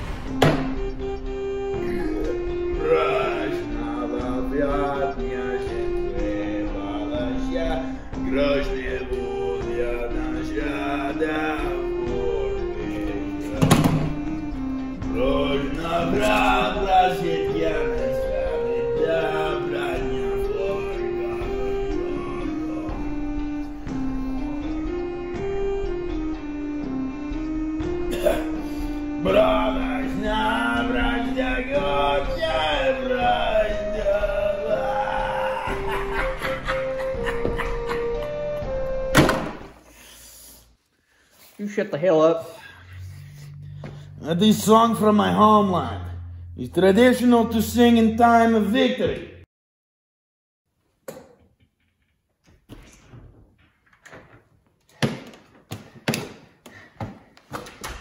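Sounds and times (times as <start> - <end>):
door opening: 0.0 - 0.9, 13.5 - 14.3, 38.9 - 39.8, 52.4 - 54.6
man singing into microphone: 2.8 - 14.3, 15.1 - 23.4, 29.2 - 36.2.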